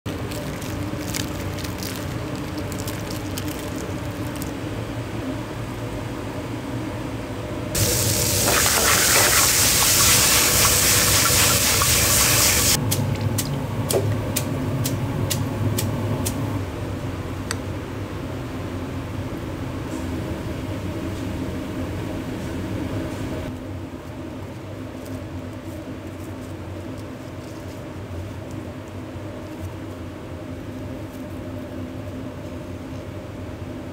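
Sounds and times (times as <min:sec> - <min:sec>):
kitchen equipment hum: 0:00.0 - 0:33.9
water-like rushing noise: 0:07.8 - 0:12.8.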